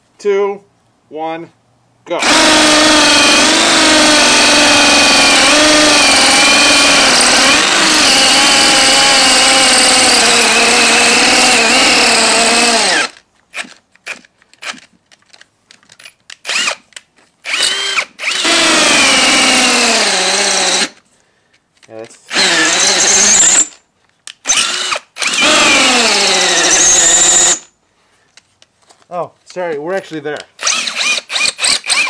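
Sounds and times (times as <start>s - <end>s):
hammer drill boring into concrete: 2.2s - 14.8s, 16.4s - 16.8s, 17.4s - 21.0s, 22.2s - 23.8s, 24.4s - 27.7s, 30.6s - 32.0s.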